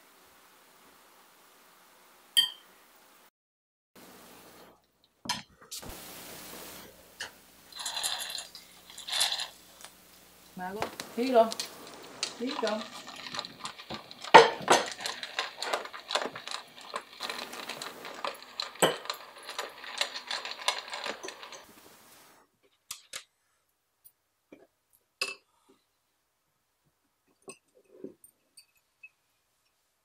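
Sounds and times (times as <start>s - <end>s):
plate and cutlery clattering: 7.2s - 9.6s, 11.6s - 21.7s
dog eating from bowl: 7.7s - 10.0s, 10.7s - 21.7s
light taps and clinks: 27.3s - 29.8s.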